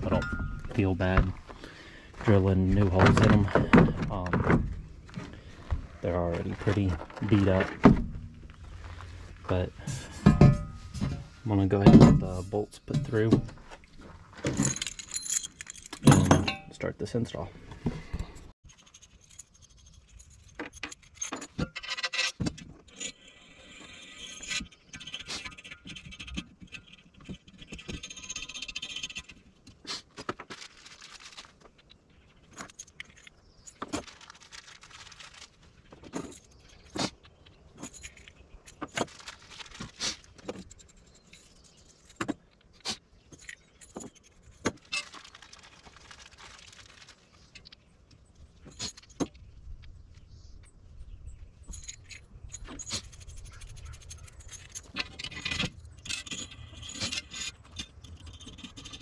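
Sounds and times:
bolts and nuts clinking: 0:00.0 - 0:01.5, 0:06.0 - 0:17.4, 0:18.2 - 0:29.8, 0:31.8 - 0:34.5, 0:35.8 - 0:45.3, 0:51.6 - 0:59.0.

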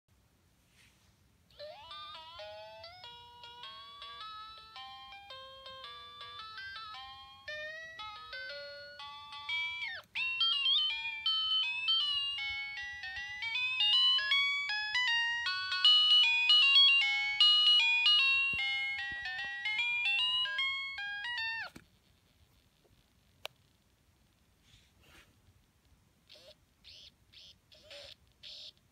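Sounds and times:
toy electronic beeping tune: 0:01.5 - 0:21.8, 0:26.3 - 0:28.8.

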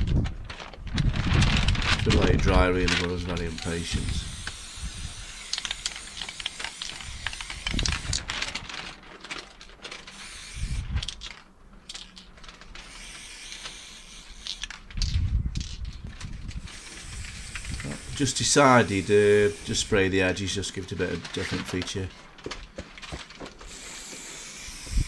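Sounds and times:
paper rustling: 0:00.0 - 0:04.1, 0:05.4 - 0:24.4
wind rumbling on microphone: 0:00.0 - 0:05.4, 0:07.0 - 0:08.8, 0:10.6 - 0:11.2, 0:14.8 - 0:18.3
spray can clicking and rattling: 0:03.0 - 0:08.6, 0:09.5 - 0:15.9, 0:16.6 - 0:19.9, 0:23.0 - 0:25.0.

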